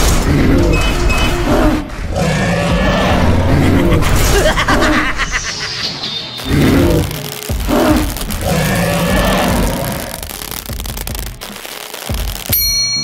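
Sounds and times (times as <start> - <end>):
dinosaur roar and growl: 0.0 - 5.4, 6.4 - 10.3.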